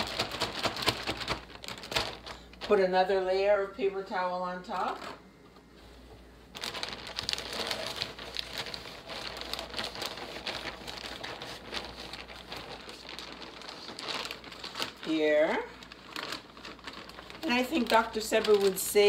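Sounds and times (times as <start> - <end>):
plastic bag crinkling: 0.0 - 3.3, 6.4 - 19.0.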